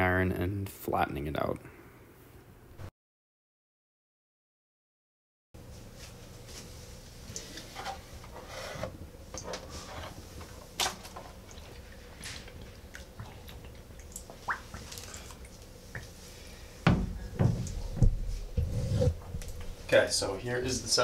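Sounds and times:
bathwater splashing and dripping: 10.5s - 16.2s, 16.9s - 18.5s.

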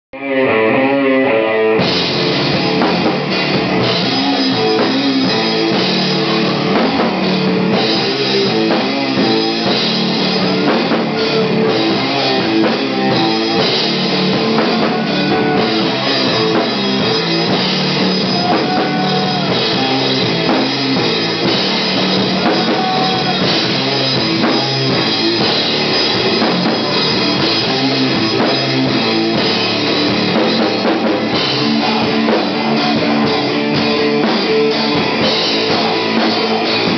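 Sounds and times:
rock band playing live: 0.2s - 36.9s.

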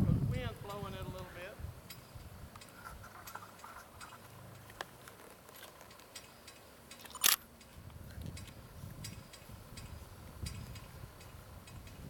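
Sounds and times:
faint ticks: 1.9s - 12.0s
sharp loud click: 6.9s - 7.4s.

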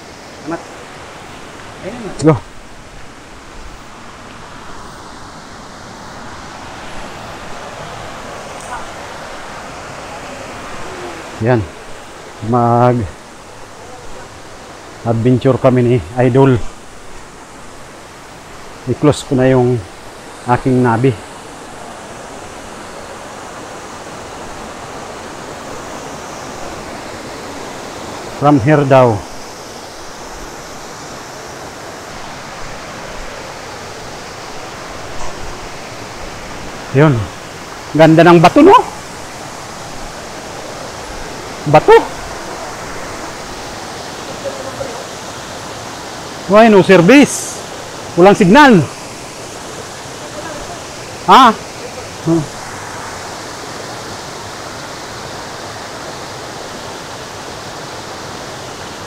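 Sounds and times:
flowing water rushing: 0.0s - 59.0s.

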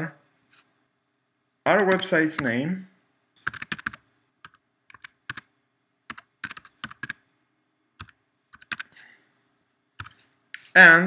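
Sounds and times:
computer keyboard key clicks: 3.4s - 5.5s, 6.1s - 7.2s.

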